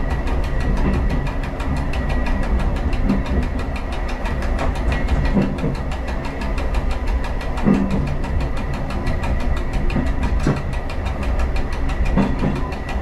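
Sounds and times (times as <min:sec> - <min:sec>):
railcar engine rumble: 0:00.0 - 0:13.0
rapid regular wheel clatter: 0:00.0 - 0:13.0.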